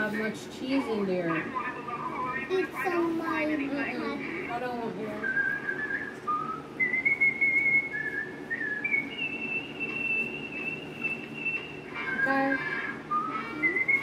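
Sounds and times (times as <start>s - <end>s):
person whistling a tune: 5.2s - 14.0s.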